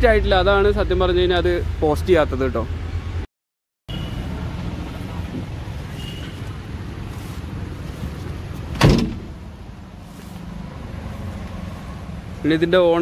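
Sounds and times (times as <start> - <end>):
metal van door slamming: 8.7 - 9.4.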